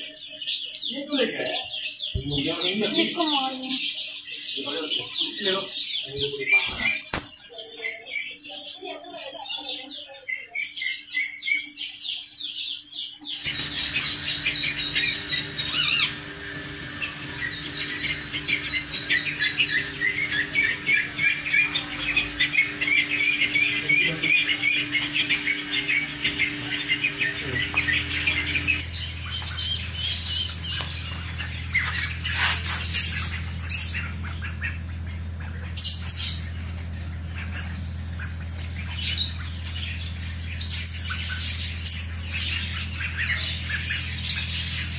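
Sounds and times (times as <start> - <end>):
ducklings peeping: 0.0 - 44.9
steady low hum: 13.3 - 44.9.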